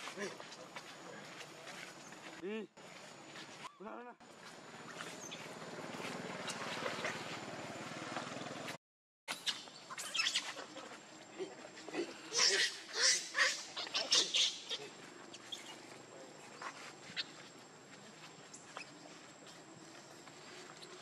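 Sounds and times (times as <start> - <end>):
macaques screaming: 9.3 - 11.0, 12.1 - 15.7.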